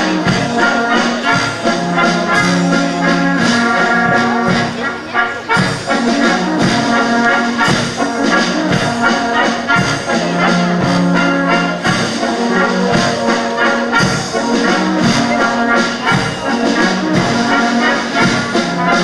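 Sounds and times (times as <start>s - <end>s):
brass band playing a waltz: 0.0s - 19.0s
low tuba notes: 0.0s - 19.0s.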